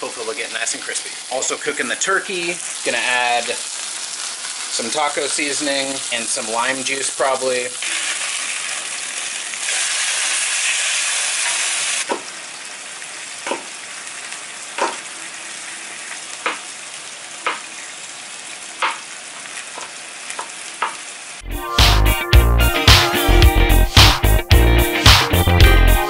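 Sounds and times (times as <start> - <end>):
meat sizzling in a frying pan: 0.0 - 21.4
knife chopping on cutting board: 13.4 - 13.7, 14.8 - 15.0.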